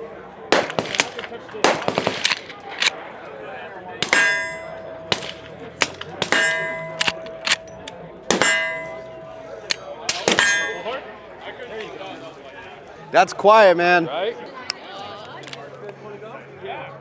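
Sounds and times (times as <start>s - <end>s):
suppressed gunshots: 0.5s - 2.9s
metallic clang and ring: 4.0s - 11.2s.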